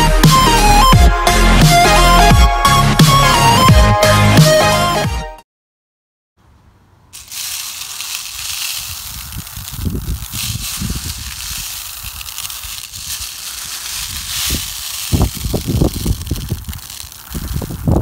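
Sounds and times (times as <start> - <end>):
plastic beads rattling: 7.2 - 18.0.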